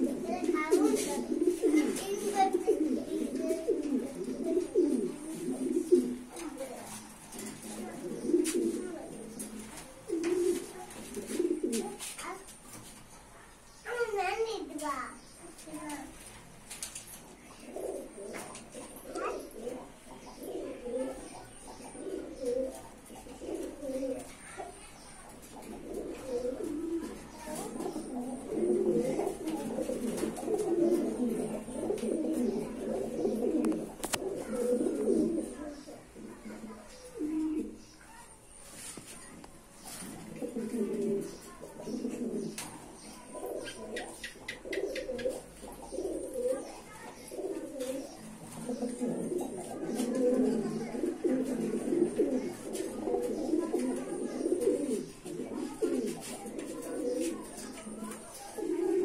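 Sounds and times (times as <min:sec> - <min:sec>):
pigeons cooing: 0:00.0 - 0:59.0.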